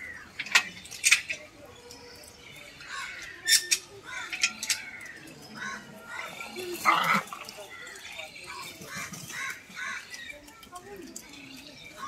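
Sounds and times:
faint background voices: 0:00.0 - 0:12.0.

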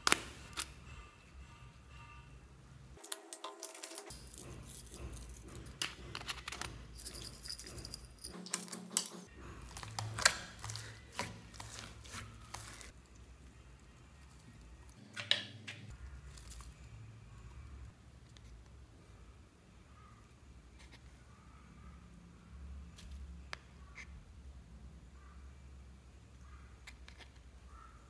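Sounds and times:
hands squishing crackling slime: 0:09.6 - 0:13.1.

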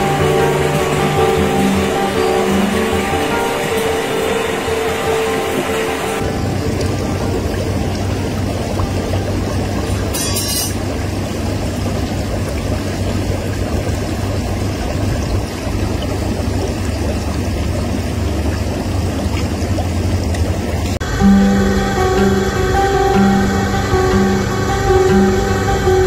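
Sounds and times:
guitar music: 0:00.0 - 0:10.8, 0:21.0 - 0:26.0
low even hum: 0:00.0 - 0:26.0
running water: 0:00.0 - 0:26.0.

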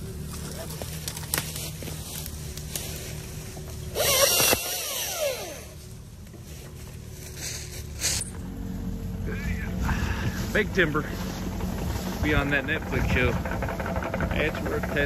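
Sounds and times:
chainsaw idling: 0:00.0 - 0:15.0
chainsaw cutting wood: 0:03.6 - 0:05.8, 0:11.4 - 0:15.0.

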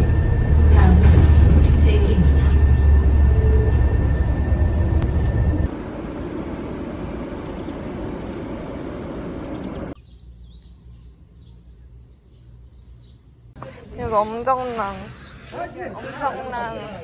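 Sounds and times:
vehicle ride rumble: 0:00.0 - 0:10.0
outdoor air: 0:00.0 - 0:17.0
small birds chirping: 0:09.4 - 0:16.1.

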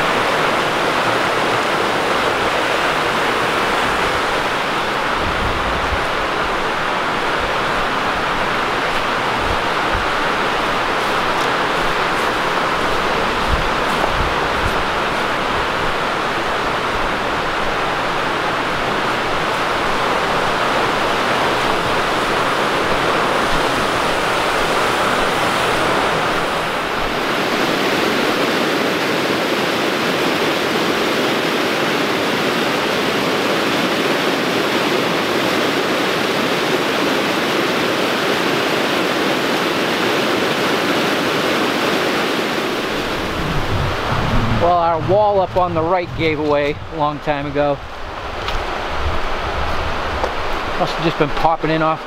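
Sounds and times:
brook rushing over rapids: 0:00.0 - 0:52.0
low rumble: 0:43.2 - 0:47.0.

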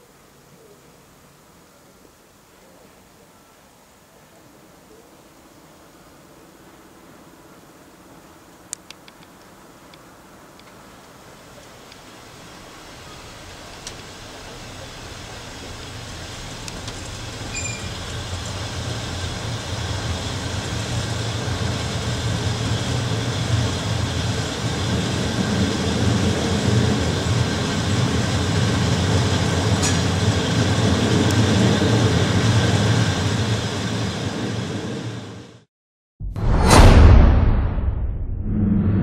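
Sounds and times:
train wheels rumbling on track: 0:10.4 - 0:35.6.

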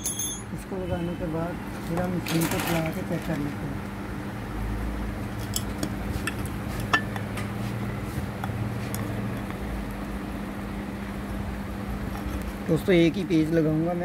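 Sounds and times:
metallic clinks of tools: 0:00.0 - 0:00.6
steady low hum: 0:02.9 - 0:14.0.

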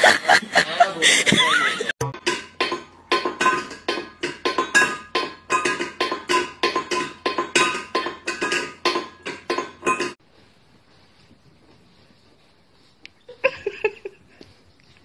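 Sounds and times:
bowl knocking on tiled floor: 0:02.1 - 0:10.2.

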